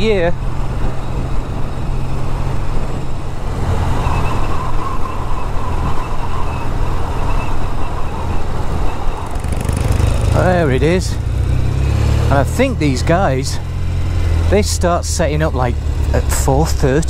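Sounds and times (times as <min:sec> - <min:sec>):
wind rushing over microphone: 0:00.0 - 0:14.5
motorcycle engine running: 0:09.2 - 0:17.0.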